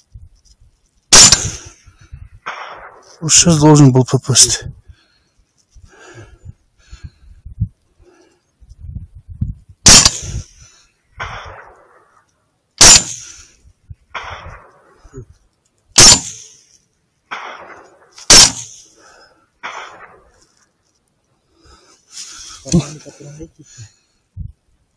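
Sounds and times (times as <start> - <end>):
gunshot echo: 1.1 - 1.8, 2.4 - 3.2, 9.8 - 10.5, 11.2 - 12.1, 12.8 - 13.5, 14.1 - 15.0, 16.0 - 16.6, 17.3 - 18.8, 19.6 - 20.3
rifle shots: 1.1 - 1.8, 2.4 - 3.2, 9.8 - 10.5, 11.2 - 12.1, 12.8 - 13.5, 14.1 - 15.0, 16.0 - 16.6, 17.3 - 18.9, 19.6 - 20.3.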